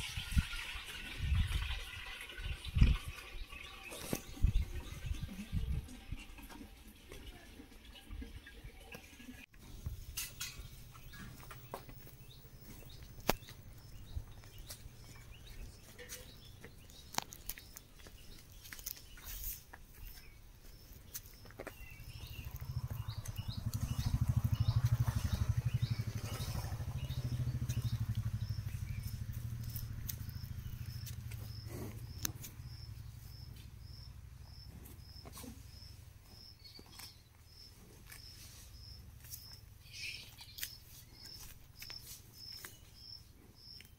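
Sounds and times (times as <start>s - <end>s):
footsteps on ground: 10.8s - 25.6s, 26.3s - 32.7s, 34.7s - 43.1s
cow hooves clicking: 10.9s - 35.4s
low rumble: 22.0s - 34.1s.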